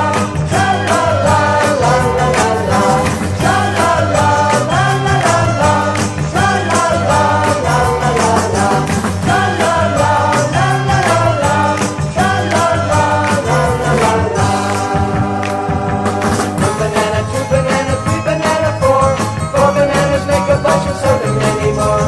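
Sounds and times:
upbeat band music with singing: 0.0 - 22.0.

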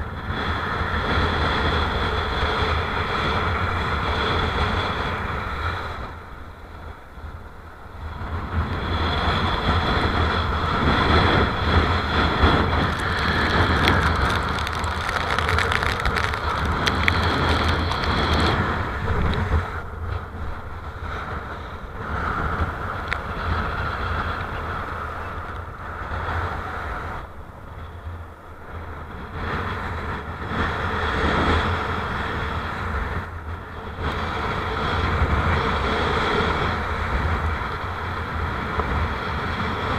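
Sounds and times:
wind buffeting microphone: 8.1 - 39.9
water rushing under board: 12.1 - 19.4.

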